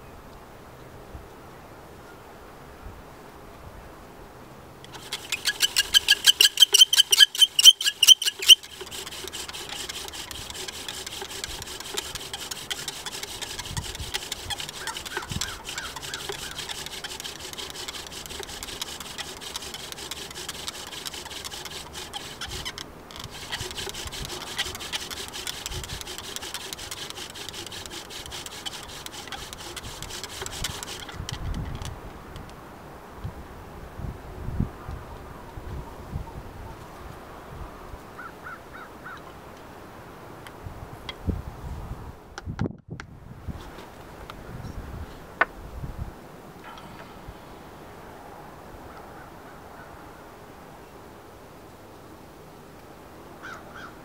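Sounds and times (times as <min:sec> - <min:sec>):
bow drill dry grinding: 0:04.9 - 0:31.9
bow drill spindle squeaking: 0:04.9 - 0:31.9.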